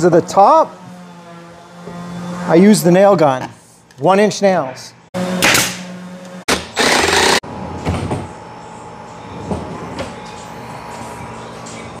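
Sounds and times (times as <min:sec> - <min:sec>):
nail gun firing: 0:05.4 - 0:05.8, 0:06.5 - 0:07.4.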